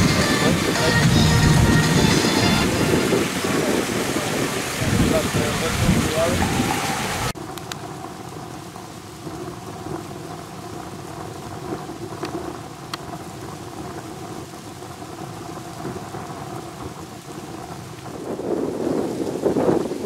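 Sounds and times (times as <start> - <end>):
wind rumbling on microphone: 0.0 - 20.0
faint clicks: 7.5 - 7.9, 12.1 - 13.2.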